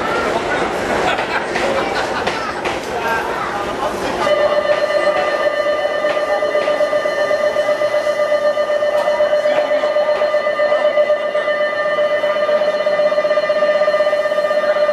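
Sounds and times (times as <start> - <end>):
electric bell ringing: 4.2 - 14.9.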